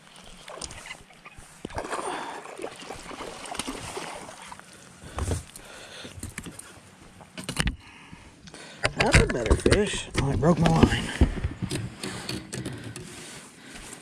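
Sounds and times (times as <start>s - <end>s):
fish thrashing and splashing: 0.0s - 5.0s
water sloshing: 0.0s - 6.4s.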